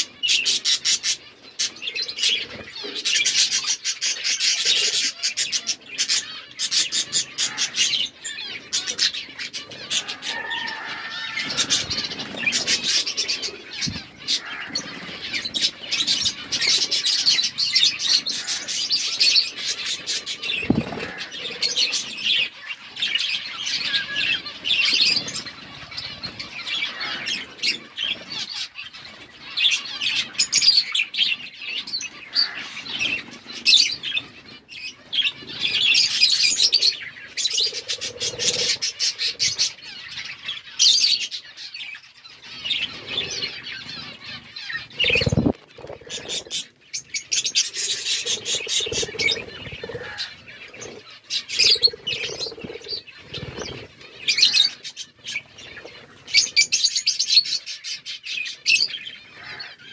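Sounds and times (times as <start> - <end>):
budgerigars chirping: 0.2 - 59.9
wing flutters: 19.6 - 22.0, 44.8 - 54.8.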